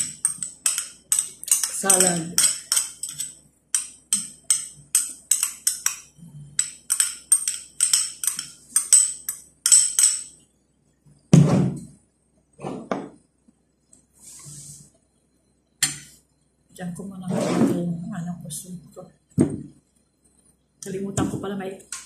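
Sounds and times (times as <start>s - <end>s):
spoon clinking on glass bowl: 0.0s - 10.4s.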